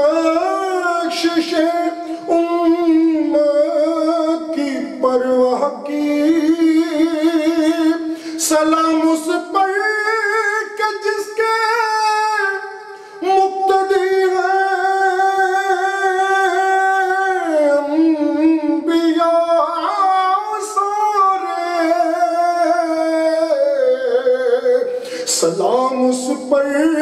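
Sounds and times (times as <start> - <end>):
man singing unaccompanied: 0.0 - 27.0.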